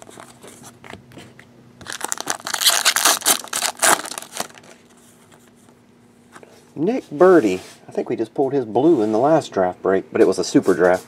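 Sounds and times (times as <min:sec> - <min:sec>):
foil wrapper crinkling and tearing: 0:01.8 - 0:04.9.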